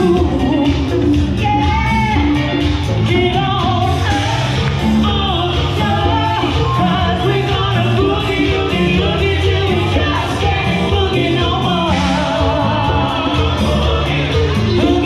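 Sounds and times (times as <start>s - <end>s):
band music with singer: 0.0s - 15.0s.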